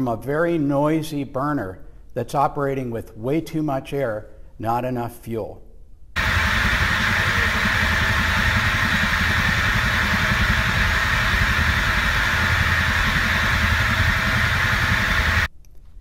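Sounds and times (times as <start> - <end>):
gas burner roaring rush: 6.2 - 15.5.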